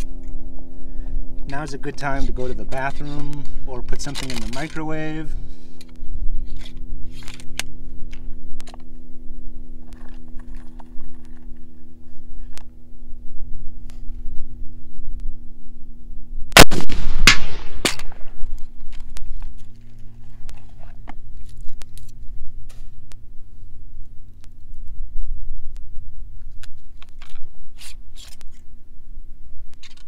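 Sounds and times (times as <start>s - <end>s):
steady low hum: 0.0s - 30.0s
rifle shot: 16.6s - 18.5s.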